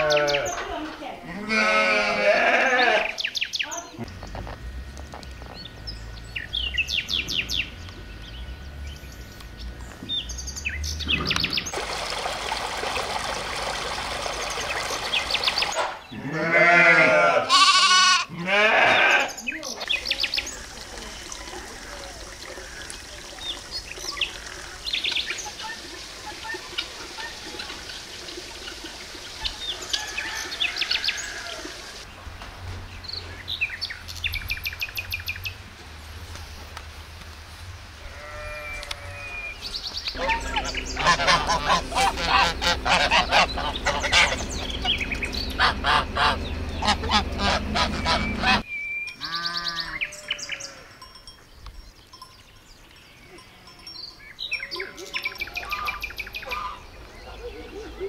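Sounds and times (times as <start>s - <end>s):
geese honking: 40.2s - 50.2s, 55.6s - 56.9s.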